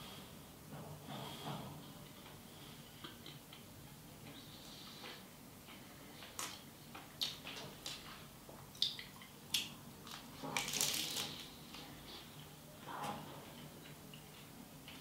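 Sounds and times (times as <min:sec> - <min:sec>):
crunching crisp pastry: 0:10.0 - 0:11.6.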